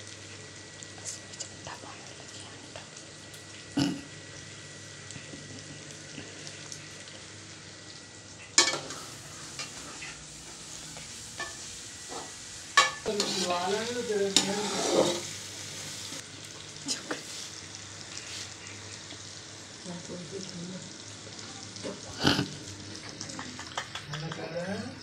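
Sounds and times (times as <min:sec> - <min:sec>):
food sizzling in a wok: 0:00.0 - 0:25.0
metal spoon knocking on pan: 0:12.8 - 0:13.0.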